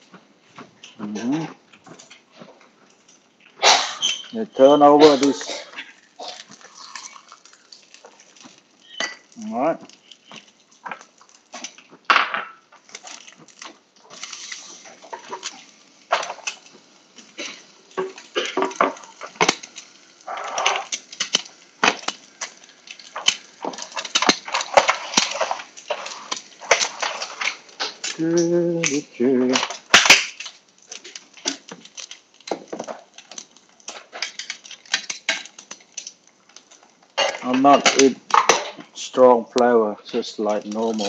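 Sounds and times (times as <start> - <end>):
kitchen handling clatter: 14.9 - 36.1.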